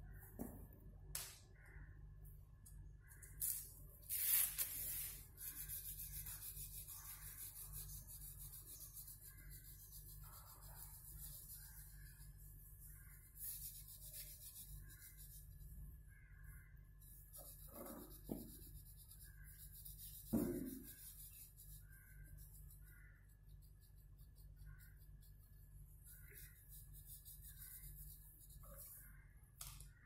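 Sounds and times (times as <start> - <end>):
oil pastel rubbing on paper: 4.2 - 15.8, 17.0 - 29.2.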